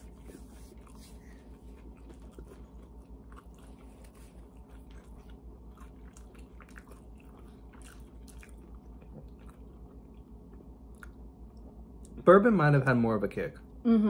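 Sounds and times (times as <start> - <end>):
steady low hum: 0.0 - 14.0
chewing crunches: 0.1 - 11.3.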